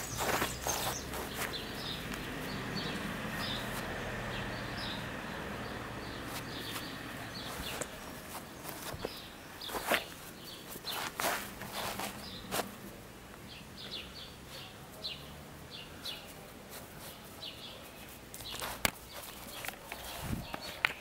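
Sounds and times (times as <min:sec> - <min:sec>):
small bird chirping: 0:00.0 - 0:12.7.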